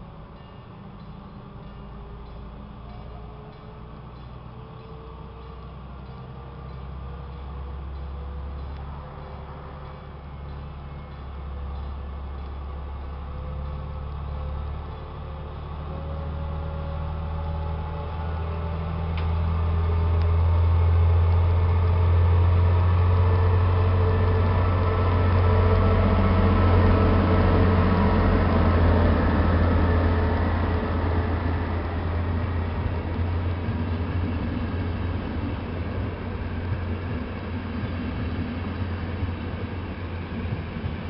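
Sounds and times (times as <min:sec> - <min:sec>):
diesel locomotive engine drone: 0:00.0 - 0:41.0
train wheels rolling on track: 0:00.0 - 0:41.0.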